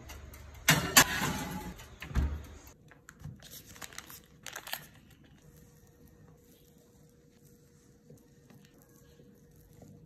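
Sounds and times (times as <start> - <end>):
parchment paper rustling: 2.9 - 10.0.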